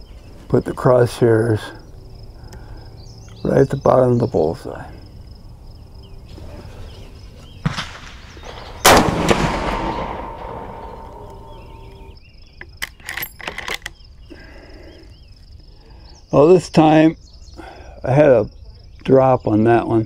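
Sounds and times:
rifle shot with echo: 7.6s - 12.1s
sharp clicks: 8.9s - 11.5s, 12.6s - 14.0s.

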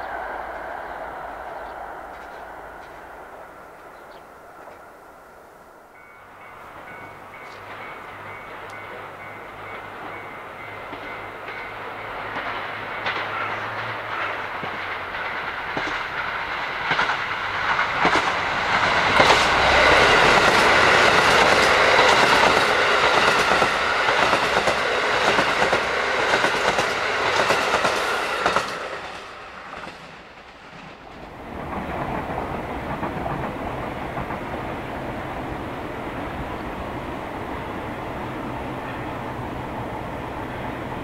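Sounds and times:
train wheels clattering over joints: 6.8s - 34.6s.

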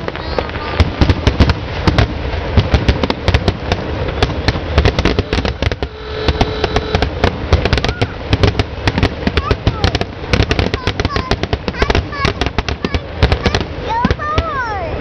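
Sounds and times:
firework shell bangs: 0.0s - 14.4s
firework crackle: 0.0s - 15.0s
firework whistle: 4.0s - 9.8s.

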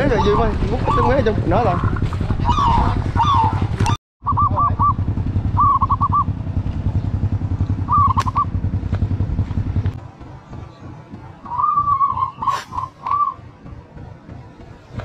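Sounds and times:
motorcycle engine running: 0.0s - 15.0s
high chirping calls: 4.2s - 6.3s, 7.8s - 8.6s.

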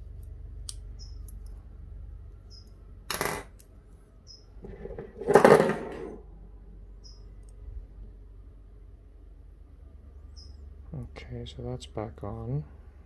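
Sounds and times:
metal parts clattering on desk: 4.6s - 6.2s.

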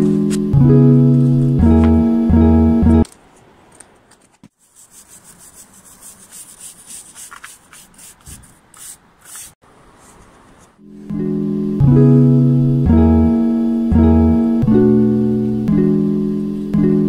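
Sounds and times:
stiff brush scrubbing stone: 4.6s - 9.6s.

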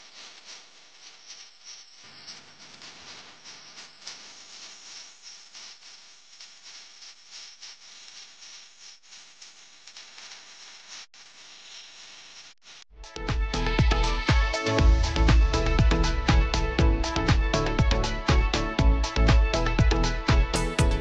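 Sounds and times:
faint crackly hiss: 0.0s - 12.9s.

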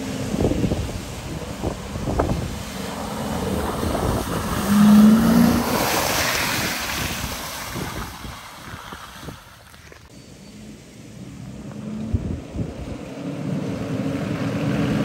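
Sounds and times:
engine revving under load: 0.0s - 8.0s, 10.4s - 15.0s
tyres splashing mud: 0.0s - 10.1s.

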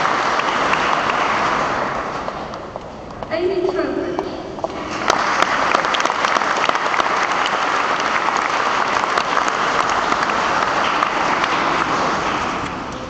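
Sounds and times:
audience applauding: 0.0s - 2.9s, 4.6s - 13.0s.

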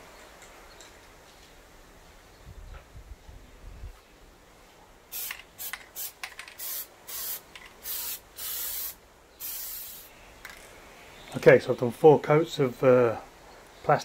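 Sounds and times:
aerosol can spraying: 5.1s - 10.1s.

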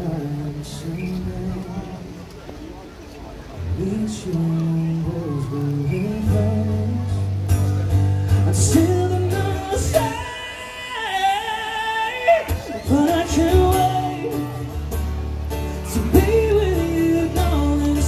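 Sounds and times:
acoustic guitar chords: 0.0s - 18.0s
person singing: 3.7s - 7.4s, 8.3s - 15.0s, 15.6s - 18.0s.

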